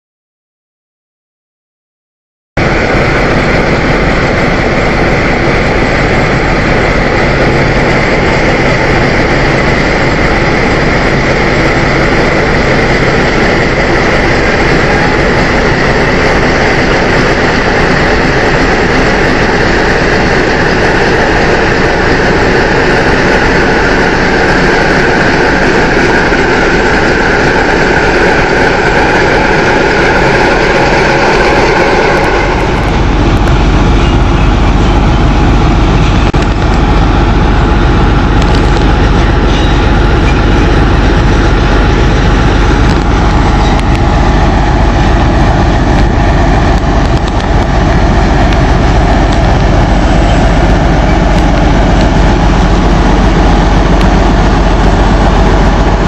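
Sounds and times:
diesel locomotive engine running: 2.6s - 56.0s
freight train rolling past: 2.6s - 56.0s.

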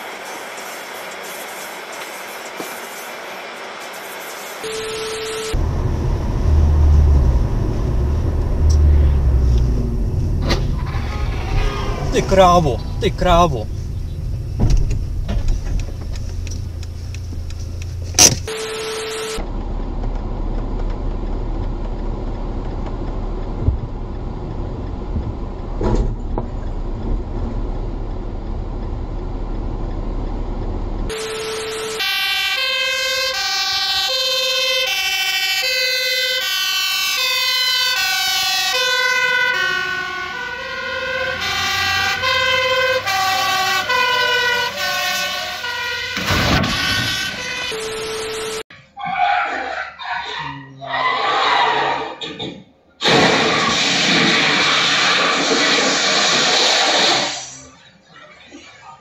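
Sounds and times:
road noise: 0.0s - 59.0s
fire engine two-tone siren: 4.6s - 7.6s, 17.9s - 19.4s, 31.1s - 48.7s
crash impact: 53.0s - 57.5s.

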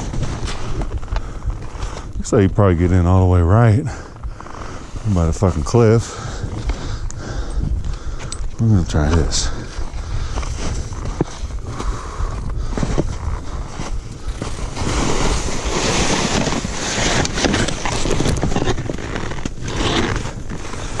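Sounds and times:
skis scraping over crusty snow: 0.0s - 7.0s, 8.9s - 21.0s
wind rumble on microphone: 0.0s - 21.0s.

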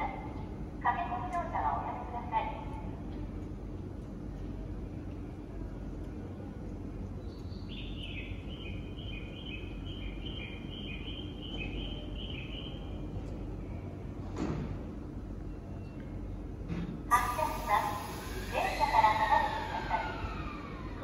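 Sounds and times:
electric train humming: 16.4s - 21.0s.

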